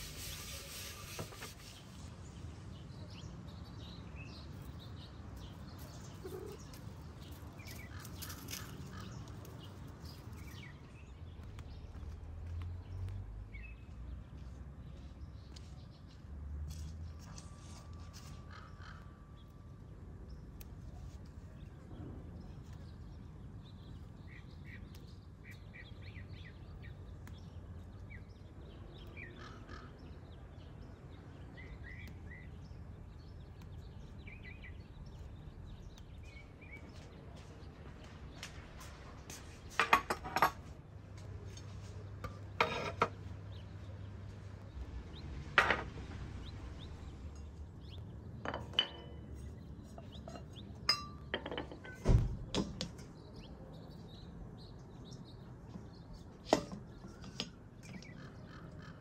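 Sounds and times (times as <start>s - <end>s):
faint birds chirping: 0.0s - 59.0s
porcelain dishes clinking on tiles: 48.4s - 49.2s, 50.2s - 52.0s.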